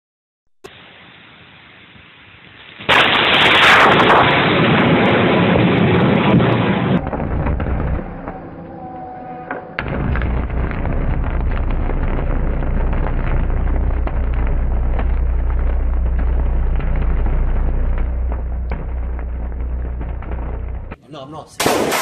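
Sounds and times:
electric arcs buzzing and crackling: 2.4s - 8.4s, 9.8s - 21.0s.

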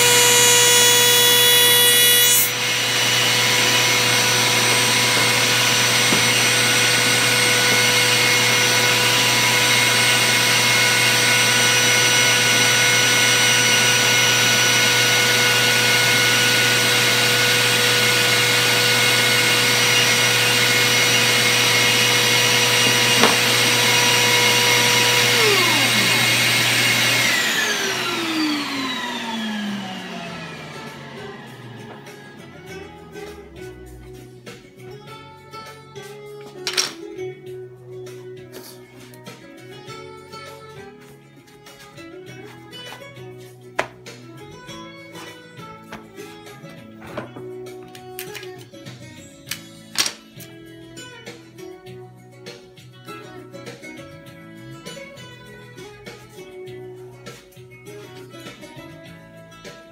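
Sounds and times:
wood router whining: 0.0s - 32.7s.

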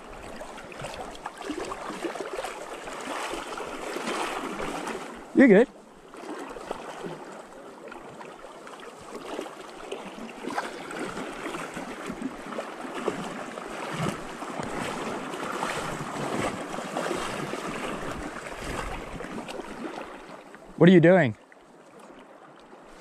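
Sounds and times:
river water rushing: 0.0s - 7.4s, 8.0s - 21.6s
splashes of wading legs: 0.0s - 20.7s.

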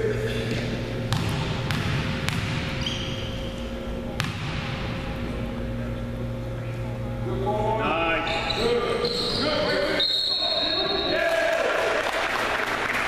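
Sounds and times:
basketball bouncing on hardwood floor: 1.1s - 2.7s
short high squeak: 2.8s - 3.4s.

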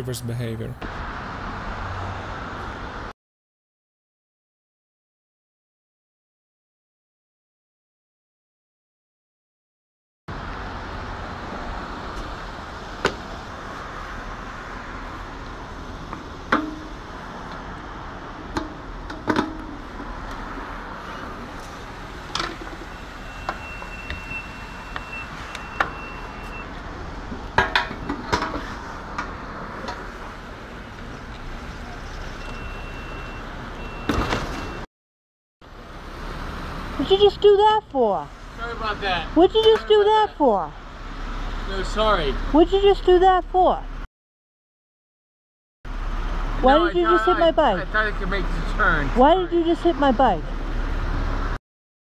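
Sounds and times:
high electronic pump beep: 32.4s - 34.8s.

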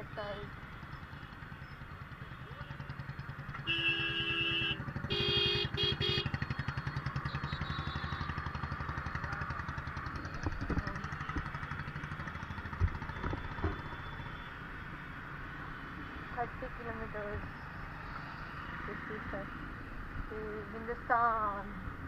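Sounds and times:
motorcycle engine running: 0.0s - 19.3s
vehicle horns honking: 3.6s - 6.4s, 7.2s - 8.4s.

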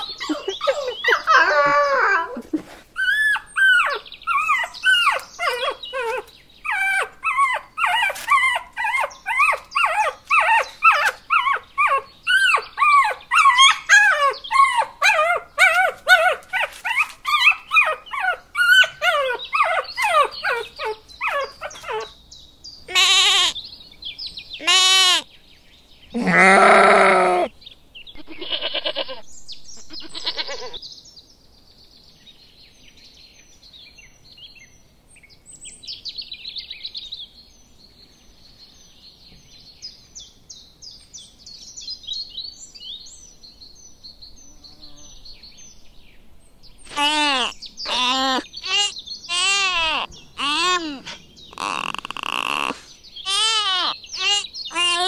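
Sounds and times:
puppies whining and yelping: 0.0s - 22.2s, 46.9s - 55.0s
loud deep animal calls: 26.2s - 27.5s, 46.9s - 55.0s.

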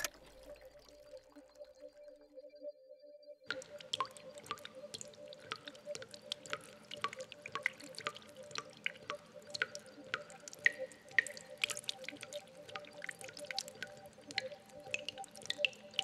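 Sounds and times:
liquid dripping into liquid: 3.5s - 16.0s.

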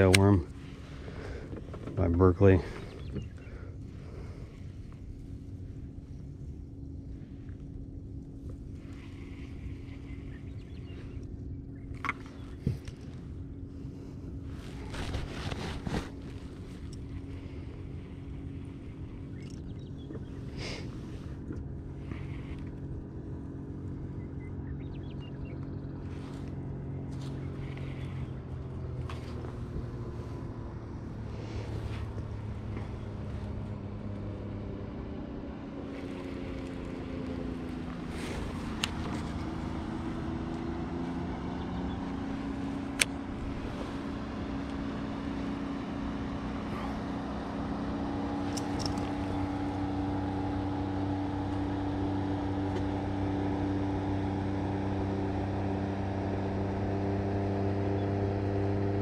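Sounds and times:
engine running steadily: 0.0s - 59.0s.

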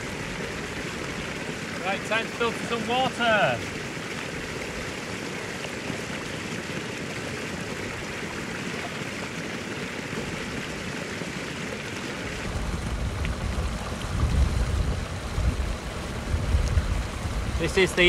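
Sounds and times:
stream splashing over rocks: 0.0s - 18.0s
wind rumble on microphone: 12.4s - 18.0s.

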